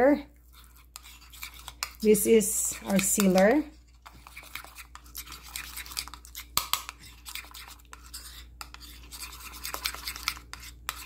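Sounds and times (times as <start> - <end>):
spoon scraping ceramic bowl: 0.4 - 11.0.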